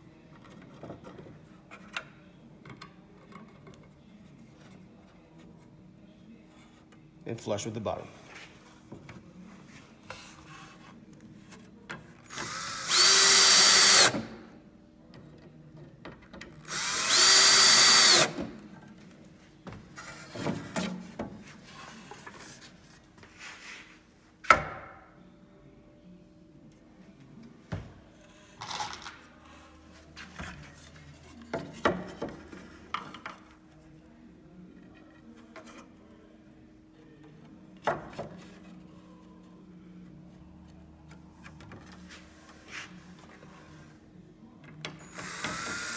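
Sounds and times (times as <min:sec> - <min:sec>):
power drill driving screws: 0:12.4 - 0:14.3, 0:16.7 - 0:18.4, 0:45.0 - 0:45.9.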